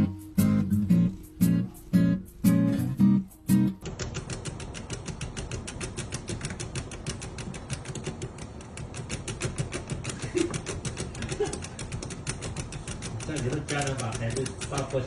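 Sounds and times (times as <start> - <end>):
steady fan noise: 0.0 - 15.0
rapid even ticking: 0.1 - 15.0.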